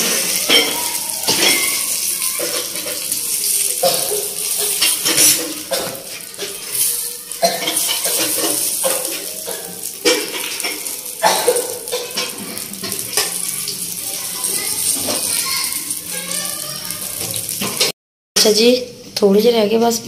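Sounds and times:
spoon knocking on griddle: 0:00.0 - 0:06.8, 0:07.5 - 0:13.5
eggplant sizzling in oil: 0:00.0 - 0:17.9.

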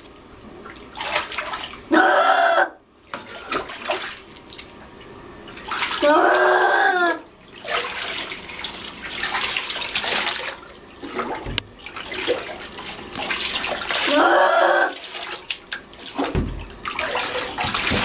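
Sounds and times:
water running and splashing: 0:00.7 - 0:01.9, 0:03.1 - 0:06.6, 0:07.4 - 0:18.0
short cry: 0:01.9 - 0:02.8, 0:06.0 - 0:07.2, 0:14.1 - 0:15.0.

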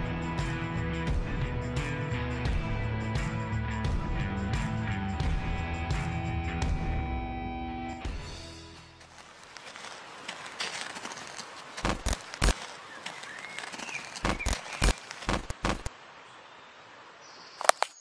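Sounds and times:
sharp snaps and cracks: 0:09.0 - 0:15.9, 0:17.6 - 0:18.0
single click: 0:17.6 - 0:18.0.

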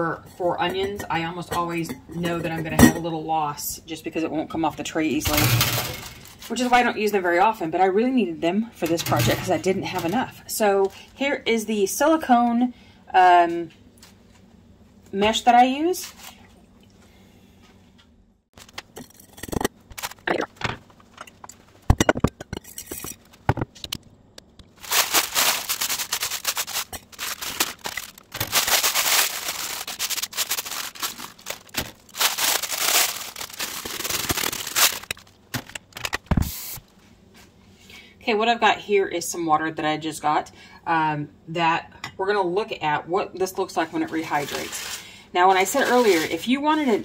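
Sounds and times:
vegetable flakes crackling: 0:24.7 - 0:35.3.

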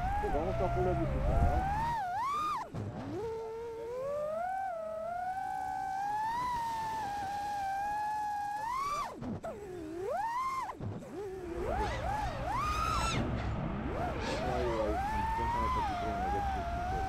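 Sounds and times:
quadcopter motors whining: 0:00.0 - 0:17.0.

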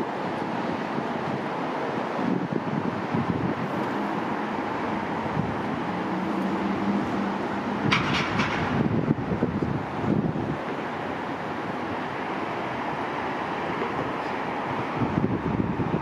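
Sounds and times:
wind on microphone: 0:00.0 - 0:13.1, 0:13.7 - 0:16.0
distant traffic rumble: 0:00.0 - 0:16.0
sharp clanks: 0:07.8 - 0:08.8.

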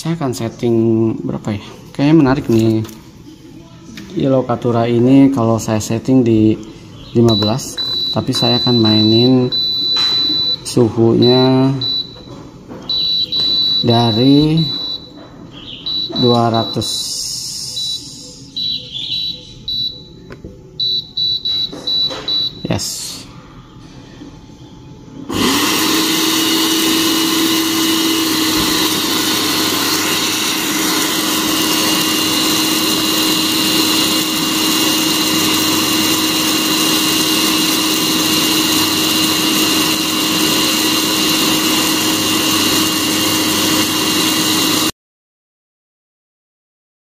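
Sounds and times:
coffee roaster fan whooshing: 0:25.3 - 0:44.9.

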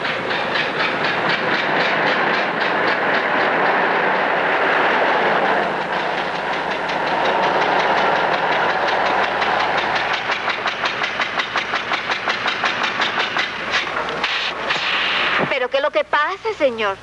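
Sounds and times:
regular knocking clatter: 0:00.0 - 0:14.9.

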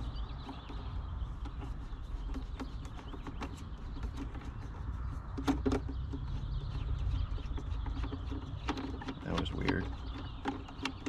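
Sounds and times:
hard plastic clicks and knocks: 0:05.3 - 0:11.0.

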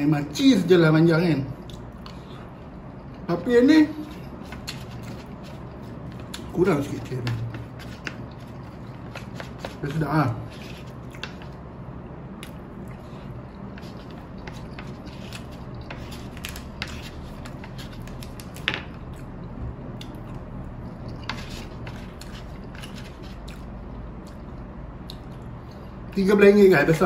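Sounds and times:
wooden spoon scraping paper tray: 0:06.6 - 0:11.4, 0:13.7 - 0:18.1, 0:21.3 - 0:23.4
wet chewing: 0:20.0 - 0:25.8.

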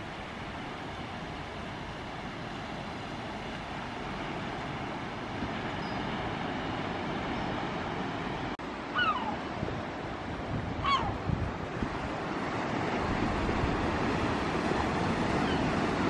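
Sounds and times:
sea surf washing on beach: 0:00.0 - 0:16.0
gull crying: 0:08.9 - 0:09.4, 0:10.8 - 0:11.2.

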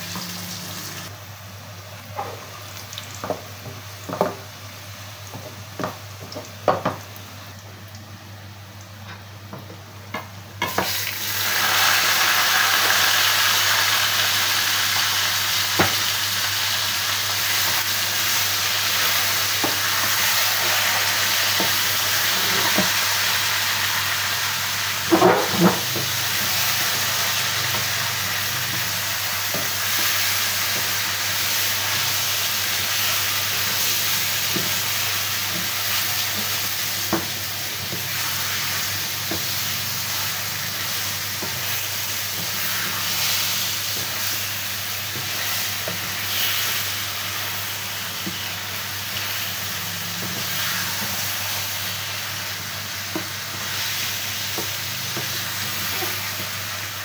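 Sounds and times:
chicken sizzling in hot oil: 0:10.6 - 0:57.0.

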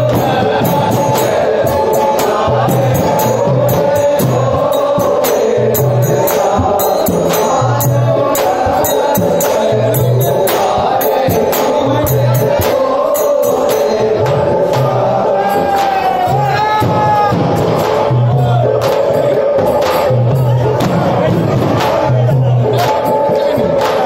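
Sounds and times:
jingling hand percussion: 0:00.0 - 0:24.0
men singing chant-like song: 0:00.0 - 0:24.0
low drum beat: 0:14.0 - 0:24.0.

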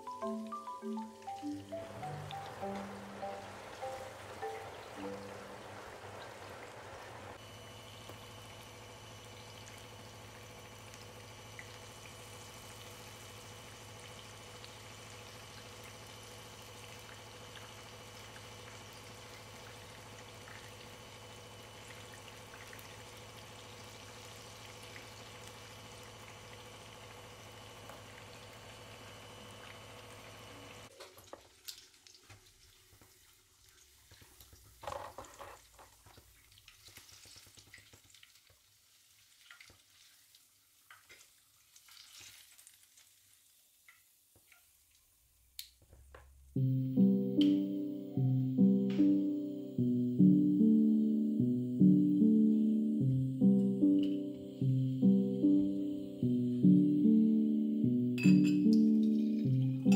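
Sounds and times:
food sizzling in hot oil: 0:00.1 - 0:07.4, 0:08.3 - 0:34.7, 0:36.4 - 0:44.8
steady hum: 0:46.6 - 0:59.9.

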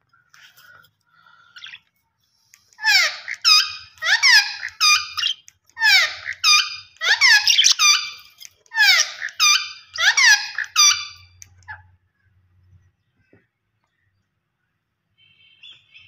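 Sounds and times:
budgerigars chirping: 0:02.8 - 0:11.4.

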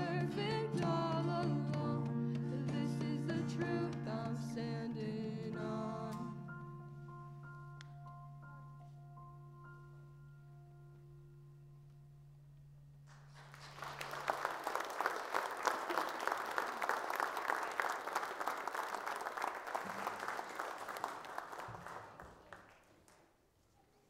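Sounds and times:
congregation clapping: 0:13.1 - 0:23.4.

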